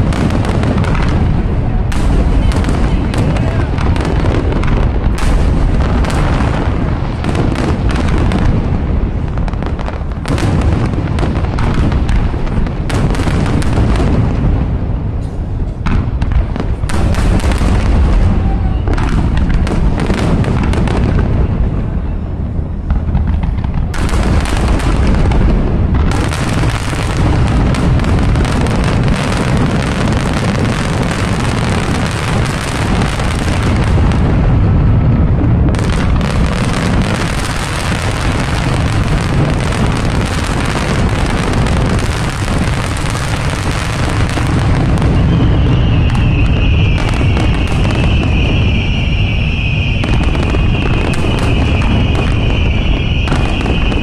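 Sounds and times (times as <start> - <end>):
fireworks booming and crackling: 0.0 - 54.0
high whistling firework: 0.0 - 54.0.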